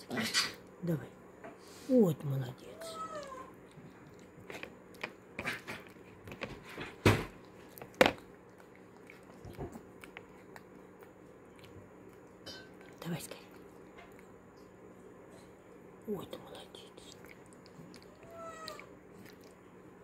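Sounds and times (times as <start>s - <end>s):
monkey chewing: 7.4s - 12.4s, 17.0s - 19.6s
wet lip smacks: 17.0s - 19.6s.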